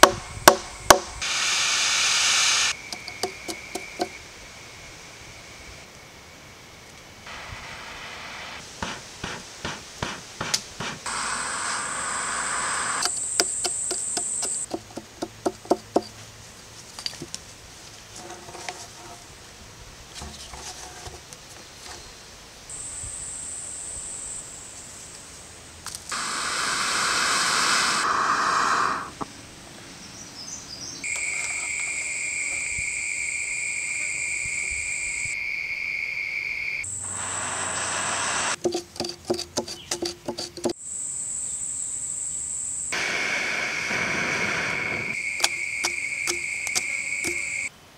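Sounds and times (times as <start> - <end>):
insect buzz: 11.0 - 14.7, 26.1 - 29.3, 31.0 - 38.6, 40.8 - 47.7
loud rushing noise: 26.1 - 29.2.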